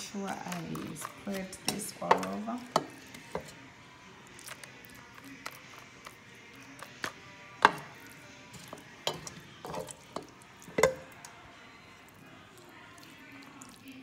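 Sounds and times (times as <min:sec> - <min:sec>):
spoon scraping a pan: 0:00.2 - 0:03.6, 0:05.2 - 0:11.3.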